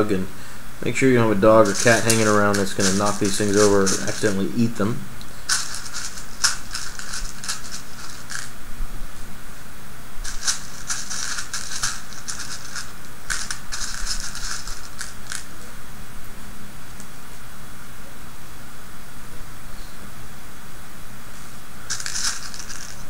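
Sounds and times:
plastic rivets clicking and rattling: 1.6s - 4.4s, 5.5s - 8.5s, 10.3s - 15.5s, 21.9s - 23.0s.

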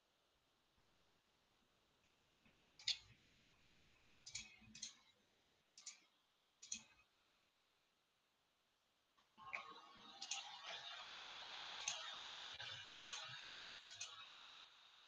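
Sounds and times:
faint computer clicks: 13.1s - 14.2s.

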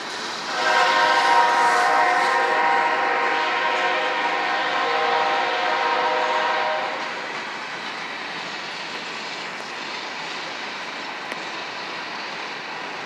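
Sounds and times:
freight cars rolling on track: 0.0s - 13.0s
train horn chord: 0.5s - 7.2s.

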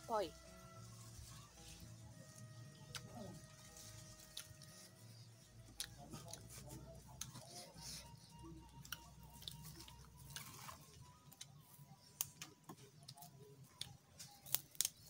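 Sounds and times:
close-up chewing: 2.8s - 15.0s
leaves snapping from stems: 14.2s - 15.0s.

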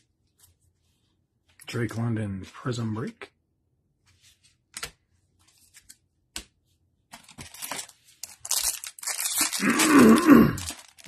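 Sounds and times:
plastic wrapper tearing and crinkling: 7.2s - 11.0s.

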